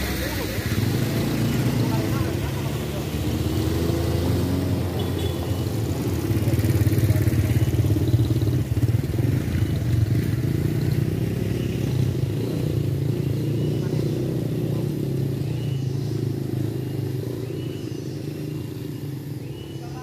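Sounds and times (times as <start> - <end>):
motorcycles riding past: 0.0 - 20.0.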